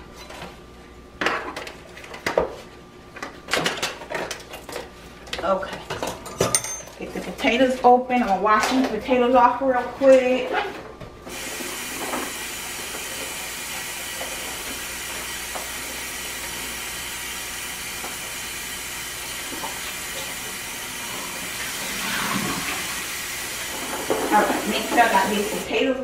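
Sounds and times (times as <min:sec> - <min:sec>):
potatoes washed under water: 0:11.3 - 0:25.6
tap running into a sink: 0:19.4 - 0:20.4.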